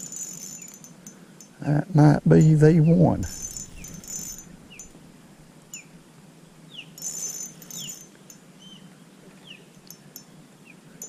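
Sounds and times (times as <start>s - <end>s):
high buzzy bird sounds: 1.6s - 11.0s.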